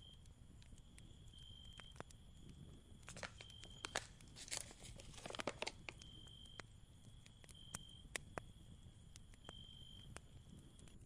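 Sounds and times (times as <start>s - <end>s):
cricket trilling: 0.0s - 8.6s
crinkly packaging handled: 3.0s - 6.0s.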